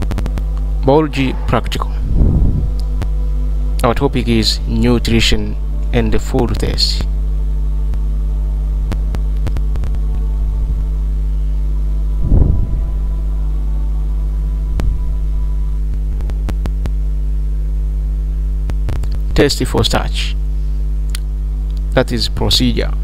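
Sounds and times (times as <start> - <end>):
electrical mains hum: 0.0 - 23.0
short low thump: 2.0 - 3.1, 12.2 - 13.0.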